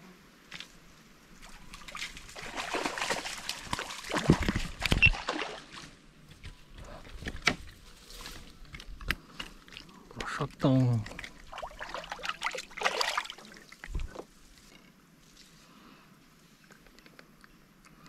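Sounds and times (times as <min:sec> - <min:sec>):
water splashing and sloshing: 0:00.6 - 0:06.2, 0:09.4 - 0:14.8.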